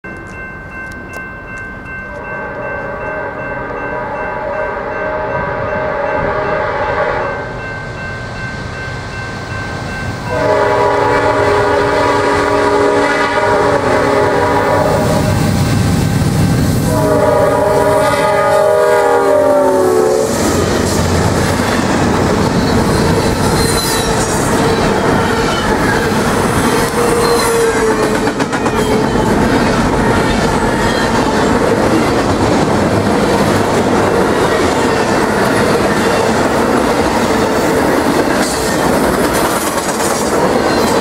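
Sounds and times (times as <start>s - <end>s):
locomotive air horn blasts: 2.2s - 7.6s, 10.3s - 15.6s, 16.8s - 20.9s.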